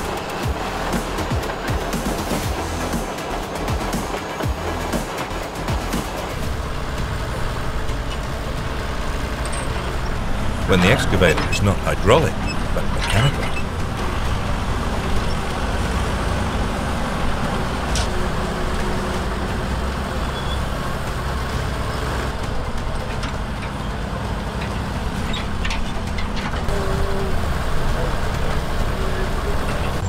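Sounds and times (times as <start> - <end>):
excavator engine running: 0.0 - 30.0.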